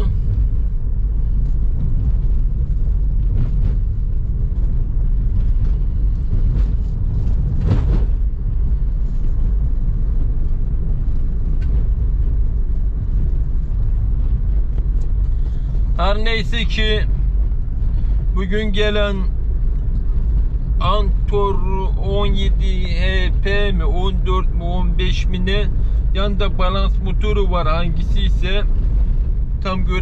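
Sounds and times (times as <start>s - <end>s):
car engine and road noise: 0.0s - 30.0s.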